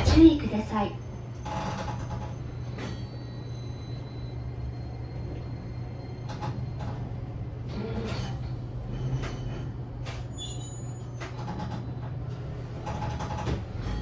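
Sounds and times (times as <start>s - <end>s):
tram cabin low hum: 0.0s - 14.0s.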